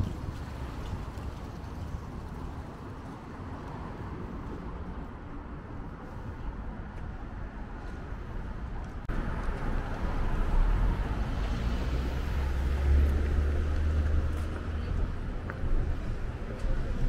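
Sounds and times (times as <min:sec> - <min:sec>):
city street traffic: 0:00.0 - 0:17.0
vehicle engine rumble passing: 0:09.0 - 0:17.0.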